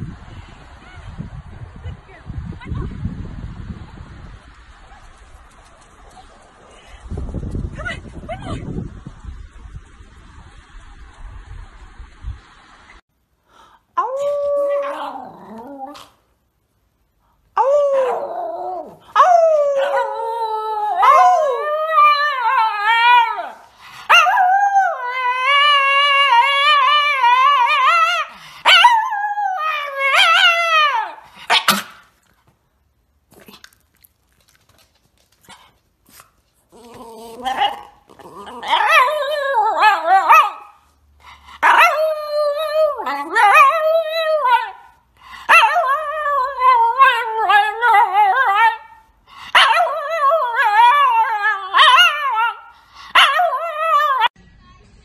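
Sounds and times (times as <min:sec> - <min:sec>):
dog howling: 0:17.6 - 0:31.2, 0:36.8 - 0:40.7, 0:41.6 - 0:44.9.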